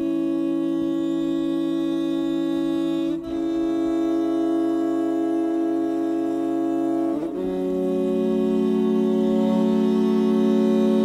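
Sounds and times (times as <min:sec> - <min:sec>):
slow held music chords: 0:00.0 - 0:11.0.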